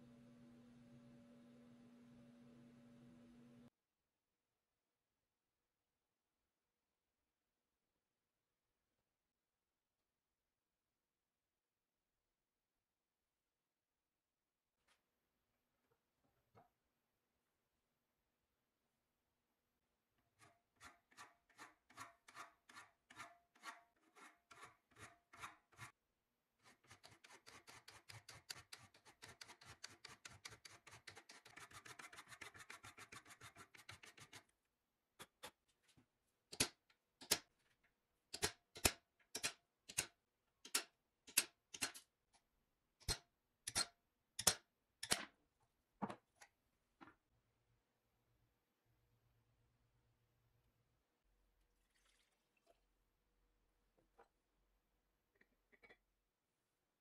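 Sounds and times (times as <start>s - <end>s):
file rasping on metal: 20.3s - 26.0s, 26.6s - 34.4s.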